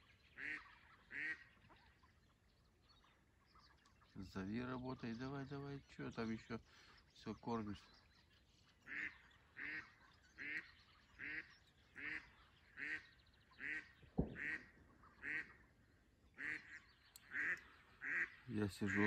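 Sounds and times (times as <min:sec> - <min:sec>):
hen duck quacking: 0:00.4 - 0:01.5, 0:08.9 - 0:13.0, 0:13.6 - 0:15.6, 0:16.4 - 0:19.0
sharp knock: 0:14.2 - 0:14.6.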